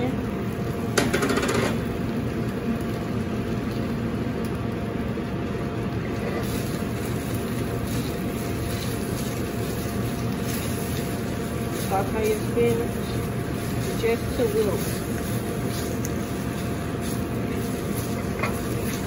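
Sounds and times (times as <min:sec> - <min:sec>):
gas burners rumbling: 0:00.0 - 0:19.0
spinach hitting hot oil: 0:00.9 - 0:01.9, 0:06.4 - 0:19.0.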